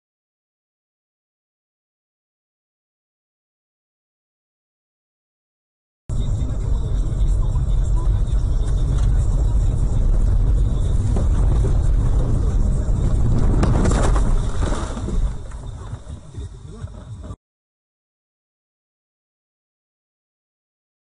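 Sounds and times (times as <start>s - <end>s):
car cabin rumble: 6.1s - 17.4s
car ploughing through deep snow: 8.1s - 17.2s.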